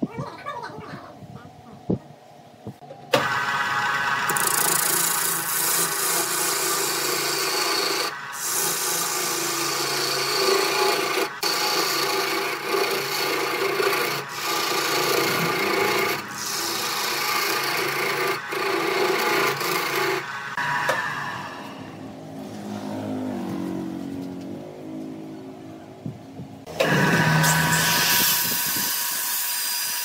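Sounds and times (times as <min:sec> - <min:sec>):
lathe motor hum and whine: 0:03.1 - 0:22.6, 0:26.7 - 0:30.0
turning tool scraping wood: 0:04.3 - 0:20.2.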